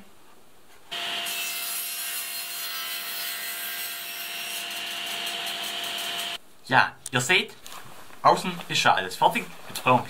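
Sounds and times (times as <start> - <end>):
table saw cutting wood: 0.9 - 6.4
saw whine: 4.6 - 6.4.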